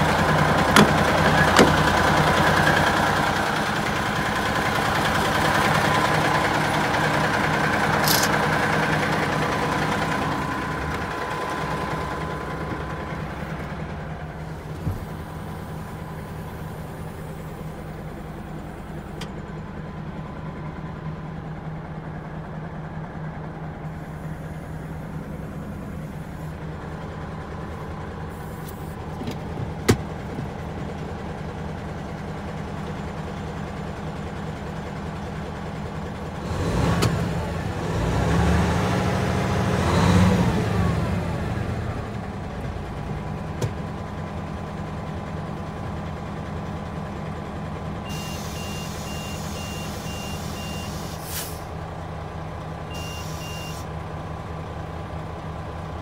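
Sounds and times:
diesel truck engine idling: 0.0s - 56.0s
short hiss: 48.1s - 51.7s.

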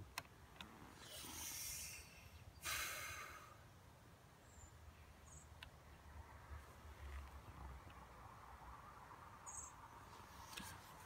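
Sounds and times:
soft breaths: 0.7s - 3.7s.

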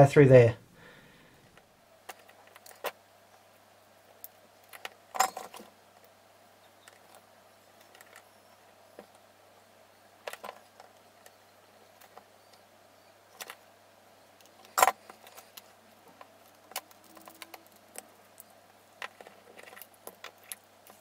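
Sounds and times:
faint low hum: 0.0s - 21.0s
small tools handled on a mat: 4.2s - 6.1s, 14.4s - 21.0s.

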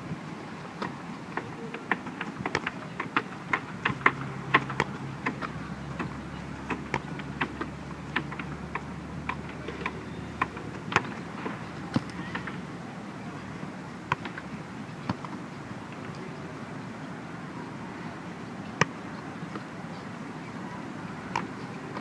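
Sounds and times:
steady outdoor hiss: 0.0s - 22.0s
football being kicked: 14.1s - 14.4s.

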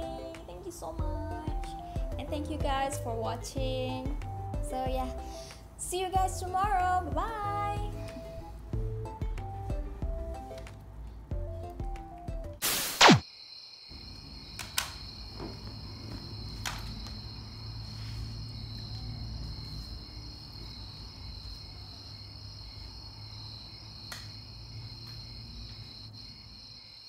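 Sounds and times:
insects trilling: 13.0s - 27.0s.

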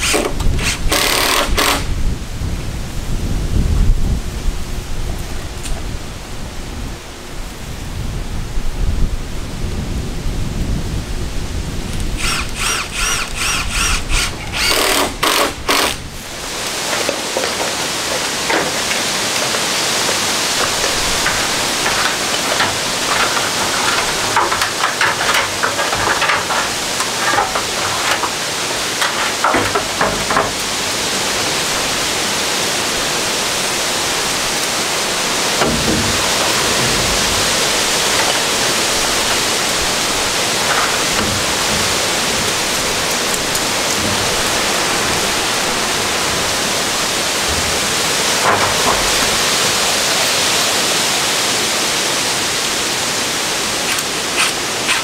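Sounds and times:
power tool running in bursts: 0.0s - 1.9s, 12.2s - 16.0s
wind rumbling on microphone: 0.0s - 55.0s.

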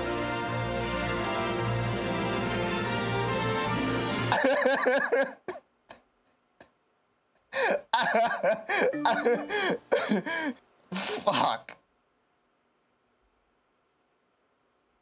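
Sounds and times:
man laughing: 4.3s - 6.7s, 7.5s - 11.8s.

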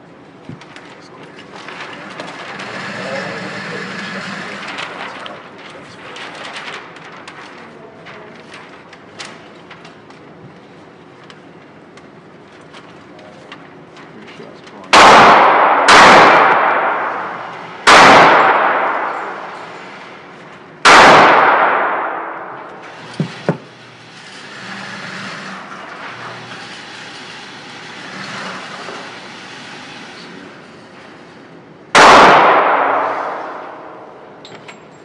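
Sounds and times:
gunshots echoing indoors: 14.9s - 23.5s, 31.9s - 34.4s.

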